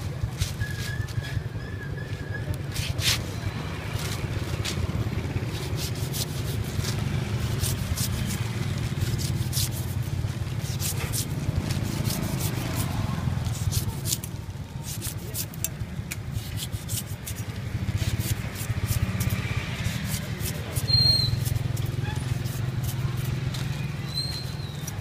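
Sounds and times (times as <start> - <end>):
cleaver scraping pineapple skin: 2.0 - 25.0.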